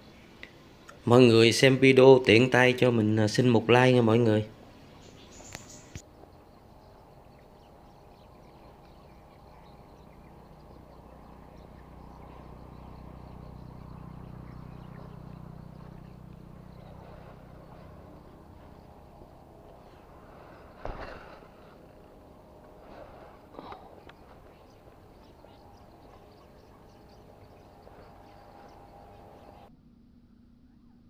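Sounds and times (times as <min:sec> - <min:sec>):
faint low hum: 0:00.0 - 0:31.0
outdoor ambience: 0:00.0 - 0:31.0.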